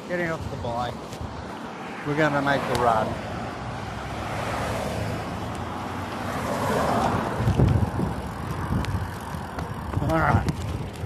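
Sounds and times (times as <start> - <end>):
car passing: 0.7 - 11.0
wind on microphone: 7.0 - 11.0.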